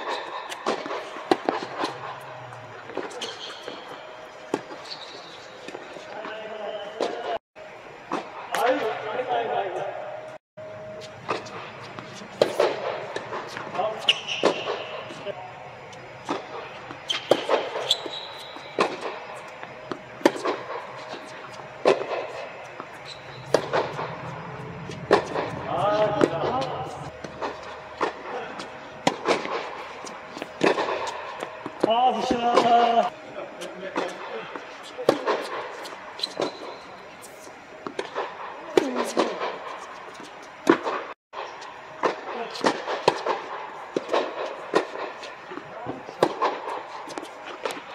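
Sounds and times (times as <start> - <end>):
tennis ball bouncing on hard court: 0.0 - 2.0, 11.3 - 14.9, 16.2 - 28.2
tennis ball struck by rackets: 11.3 - 14.9, 17.1 - 28.2, 29.0 - 32.9, 42.0 - 45.3, 46.1 - 47.8.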